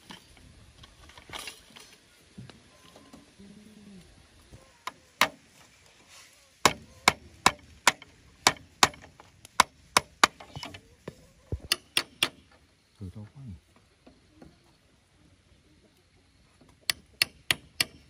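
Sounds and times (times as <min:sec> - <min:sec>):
hand tool striking wood: 0:05.2 - 0:05.4, 0:06.6 - 0:10.8, 0:11.6 - 0:12.6, 0:16.7 - 0:18.0.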